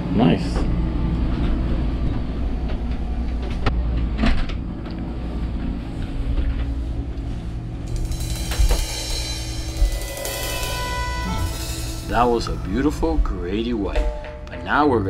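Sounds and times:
steady low hum: 0.0s - 15.0s
music: 4.4s - 15.0s.

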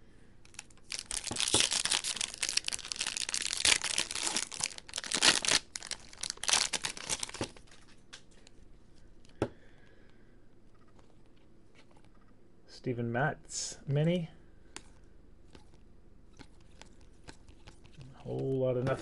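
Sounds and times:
foil wrapper crinkling: 0.5s - 7.8s.

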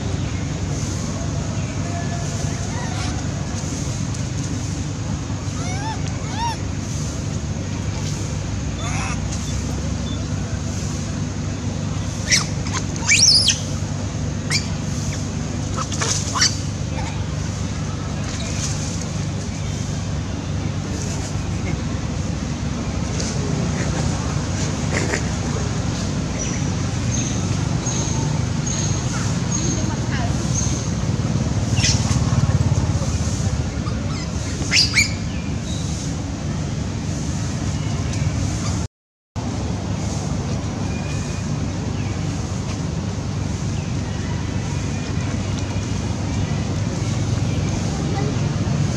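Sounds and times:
low engine drone: 0.0s - 48.9s
steady low hum: 0.0s - 48.9s
monkey screaming: 5.5s - 6.6s, 8.8s - 9.3s, 12.2s - 13.7s, 15.8s - 17.1s, 33.7s - 35.2s
monkey squealing: 5.5s - 6.6s, 8.8s - 9.3s, 12.2s - 13.7s, 14.5s - 15.2s, 15.8s - 17.1s, 33.7s - 35.2s.

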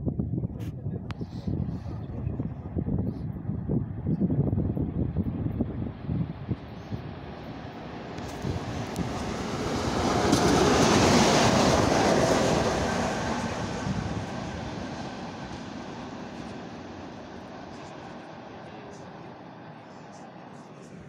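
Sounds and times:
electric locomotive passing: 4.7s - 21.0s
wheel and rail noise: 6.7s - 21.0s.

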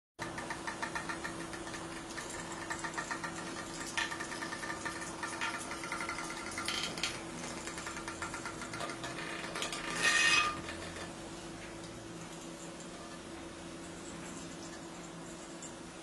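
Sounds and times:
toy bugs buzzing and rattling: 0.3s - 11.1s.

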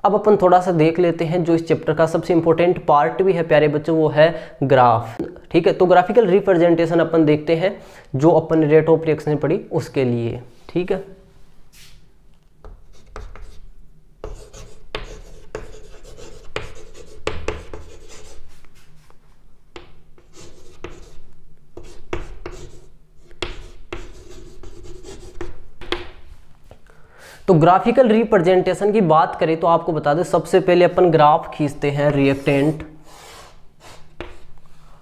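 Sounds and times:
chalk scratching on blackboard: 12.7s - 19.1s, 20.2s - 21.2s, 21.8s - 25.6s, 32.2s - 34.6s.

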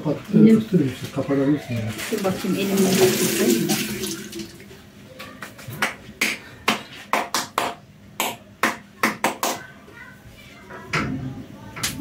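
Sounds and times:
running water: 1.9s - 4.7s.

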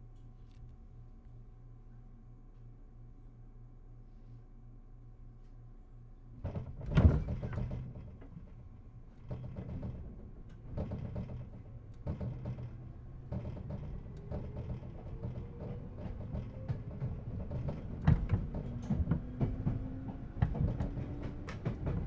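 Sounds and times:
train interior hum: 0.0s - 22.0s
sliding doors closing with thud: 6.4s - 8.4s, 9.2s - 22.0s
train wheel knocks: 9.2s - 22.0s.

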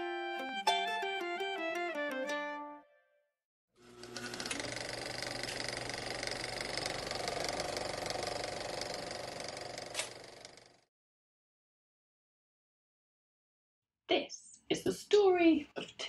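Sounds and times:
mechanical whir: 3.8s - 10.8s
rapid mechanical clattering: 4.0s - 10.8s.

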